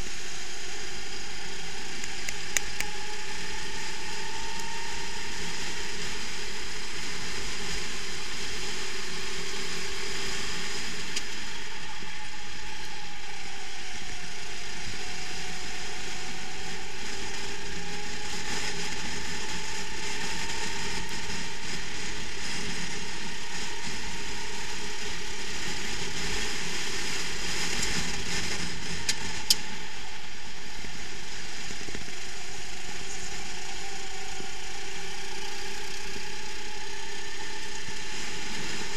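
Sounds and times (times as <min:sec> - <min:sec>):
kart motor whirring and rattling: 0:00.0 - 0:38.9
sharp click: 0:02.0 - 0:02.9.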